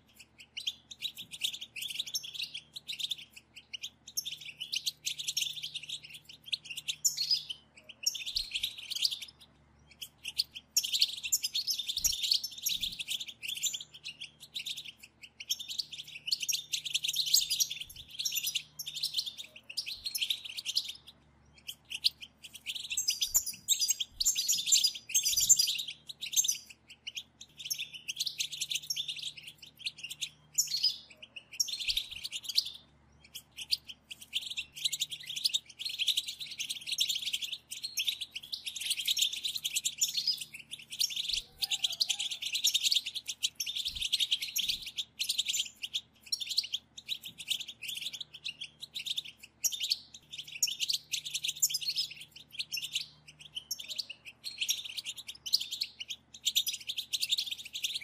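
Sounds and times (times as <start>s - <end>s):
finches twittering: 0.0s - 58.0s.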